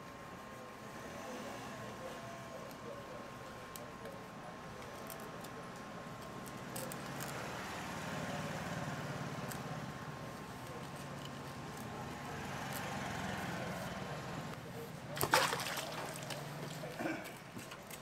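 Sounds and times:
low mechanical hum: 0:00.0 - 0:18.0.

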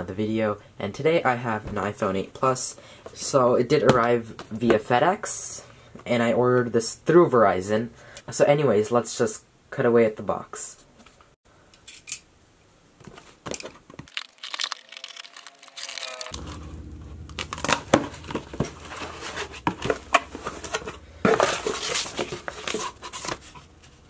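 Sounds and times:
paper crinkling: 0:13.0 - 0:16.6, 0:17.4 - 0:24.0
cardboard flaps scraping and knocking: 0:17.6 - 0:24.0.

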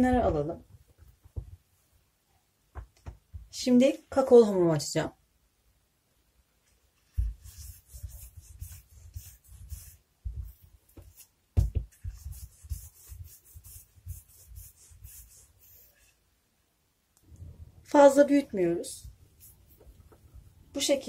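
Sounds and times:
rolling pin rolling dough: 0:07.0 - 0:16.2.

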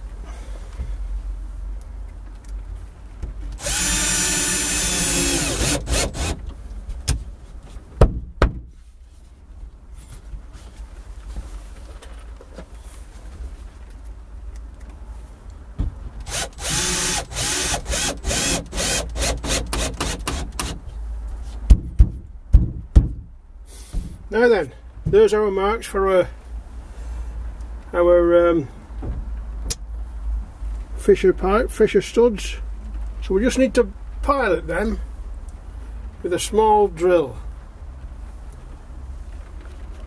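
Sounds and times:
electric drill running: 0:03.6 - 0:06.4, 0:16.3 - 0:20.7
sharp knocks: 0:08.0 - 0:08.7, 0:21.7 - 0:23.3.

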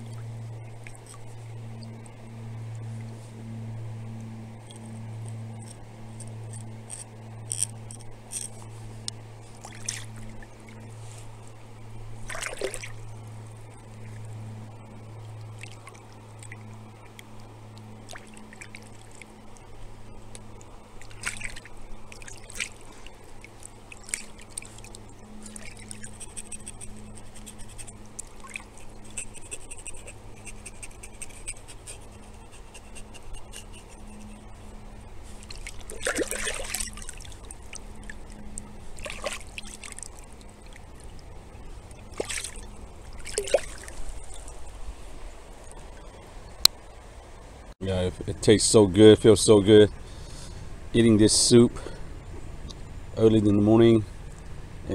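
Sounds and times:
stream water trickling: 0:00.0 - 0:47.8, 0:48.4 - 0:54.9
splashes in water: 0:09.6 - 0:10.1, 0:12.2 - 0:13.0, 0:21.0 - 0:23.0, 0:35.4 - 0:37.4, 0:39.0 - 0:40.2, 0:42.1 - 0:44.6.

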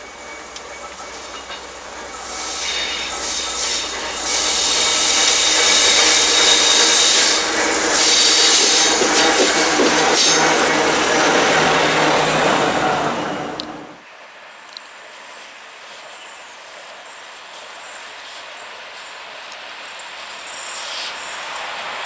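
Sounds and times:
diesel locomotives passing: 0:00.0 - 0:14.0, 0:17.9 - 0:22.0
wheels on rails: 0:00.2 - 0:14.0.

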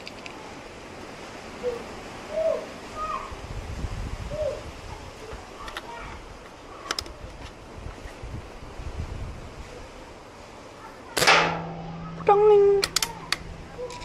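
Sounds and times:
bird hooting coos: 0:01.5 - 0:03.3, 0:04.3 - 0:04.7.

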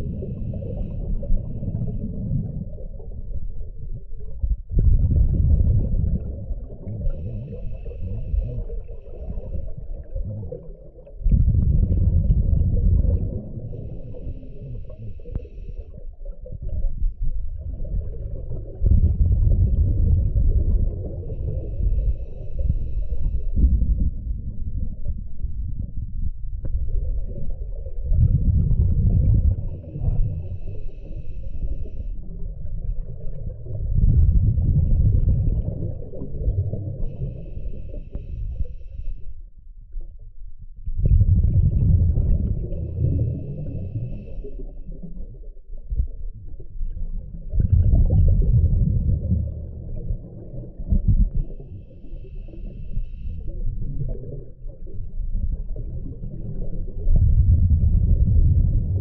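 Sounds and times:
regulator hiss on inhale: 0:00.0 - 0:02.0, 0:07.0 - 0:09.8, 0:13.7 - 0:16.1, 0:21.3 - 0:23.7, 0:29.6 - 0:32.2, 0:37.0 - 0:39.4, 0:42.8 - 0:44.8, 0:51.4 - 0:53.6
rumble of exhaled bubbles: 0:00.0 - 0:59.0.

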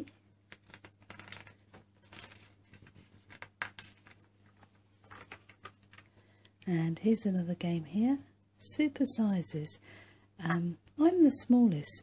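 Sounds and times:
magazine page rustling: 0:00.4 - 0:06.2.

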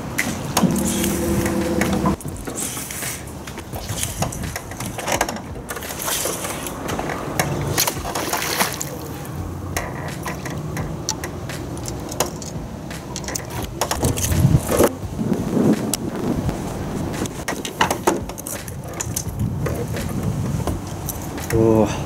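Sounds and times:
sharp clicks and knocks: 0:00.1 - 0:02.6, 0:03.5 - 0:08.6, 0:09.7 - 0:14.9, 0:17.1 - 0:21.6
water lapping against boat hull: 0:00.6 - 0:11.0.

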